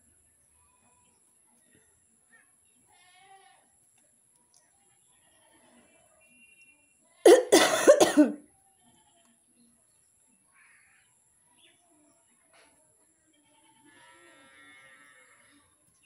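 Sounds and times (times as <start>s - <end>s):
person coughing: 7.3s - 8.4s.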